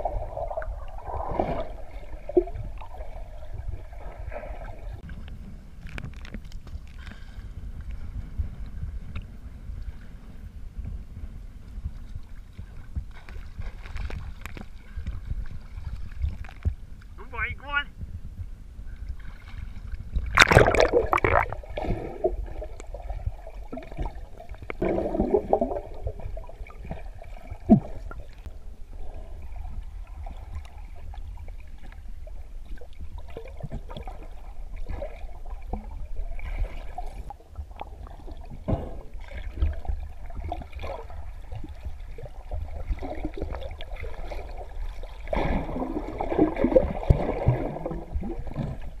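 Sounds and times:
low rumble: 0:00.0 - 0:17.2, 0:17.9 - 0:43.8
water sloshing and gurgling: 0:00.0 - 0:49.0
water splashing: 0:19.2 - 0:28.6, 0:29.3 - 0:49.0.

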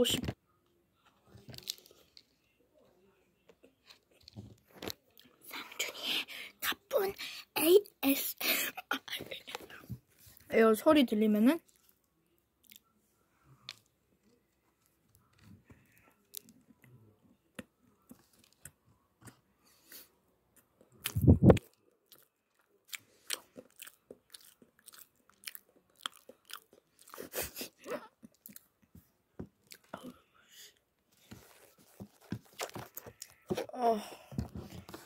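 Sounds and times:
chewing bread: 0:11.6 - 0:13.0, 0:13.6 - 0:29.0, 0:29.6 - 0:30.2.

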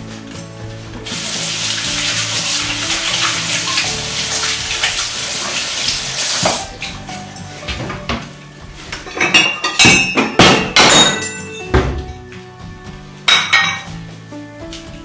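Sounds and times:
background music: 0:00.0 - 0:15.0
ceramic plates clinking: 0:08.9 - 0:12.0, 0:13.3 - 0:14.0.

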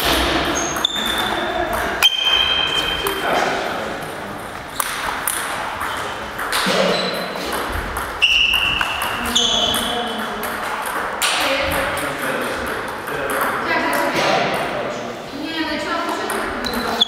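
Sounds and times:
shoes squeaking: 0:00.0 - 0:10.9, 0:16.4 - 0:17.0
ping pong ball clicking: 0:04.8 - 0:14.7.

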